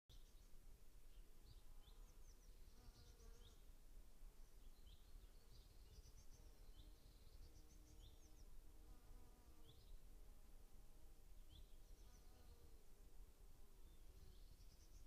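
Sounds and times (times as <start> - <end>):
small birds chirping: 0.1 - 3.7, 4.4 - 8.6, 11.4 - 12.8, 13.8 - 15.0
insect buzzing past: 7.6 - 10.0, 11.6 - 12.9.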